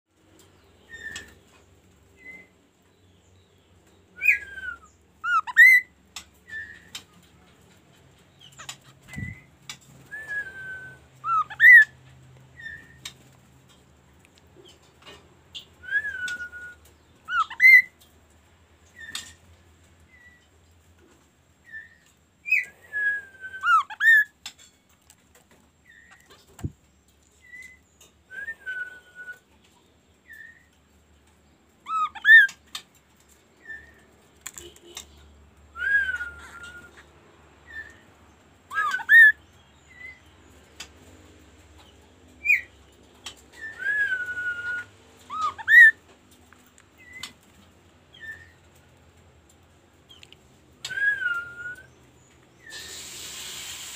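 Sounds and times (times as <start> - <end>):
songbird whistling: 0.6 - 1.4, 2.2 - 2.6, 4.1 - 7.1, 8.4 - 12.0, 12.6 - 13.2, 15.6 - 18.0, 21.6 - 24.3, 27.4 - 29.6, 30.2 - 30.7, 31.8 - 32.7, 35.7 - 38.1, 38.7 - 40.4, 42.4 - 46.0, 47.0 - 47.4, 48.1 - 48.7, 50.8 - 53.4.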